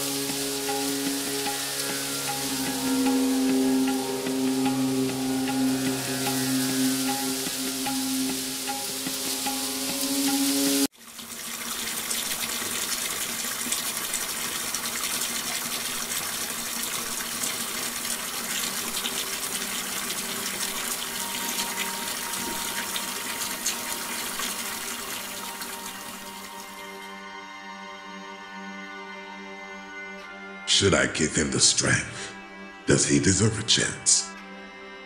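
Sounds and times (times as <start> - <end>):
tap water running into bathtub: 0.0 - 27.0.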